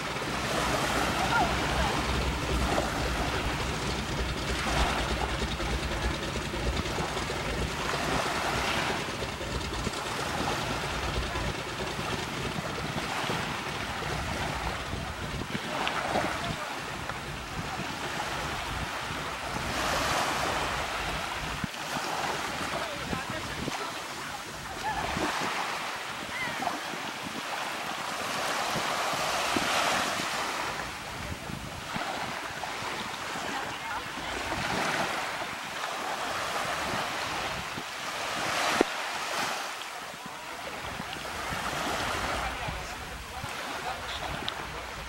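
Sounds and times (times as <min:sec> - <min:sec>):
wind buffeting microphone: 0:00.0 - 0:27.6
sea water lapping: 0:00.0 - 0:45.0
waves washing: 0:00.0 - 0:45.0.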